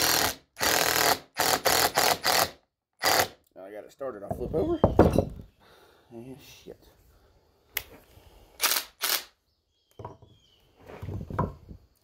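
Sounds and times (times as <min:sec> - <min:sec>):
wood thumps being set down: 0:04.2 - 0:05.5, 0:10.0 - 0:11.8.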